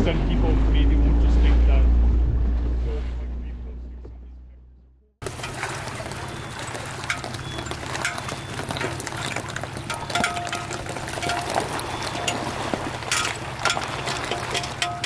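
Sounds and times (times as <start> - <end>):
trailer clinks and rattles: 5.2 - 15.0
truck engine running: 5.2 - 15.0
water at ramp: 5.2 - 15.0.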